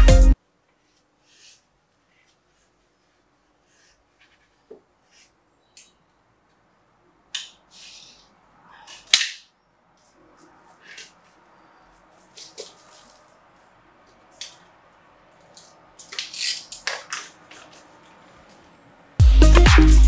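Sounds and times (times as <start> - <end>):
wallpaper rustling and scraping: 0.8 - 5.4, 10.0 - 14.4.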